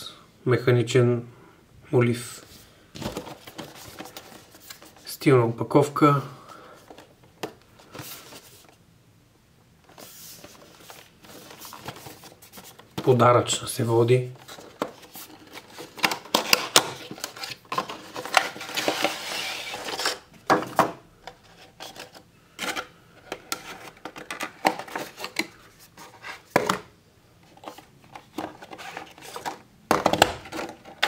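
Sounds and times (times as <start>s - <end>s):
cardboard and plastic sliding: 3.0s - 5.1s, 6.8s - 8.8s, 9.8s - 13.3s, 14.3s - 31.0s.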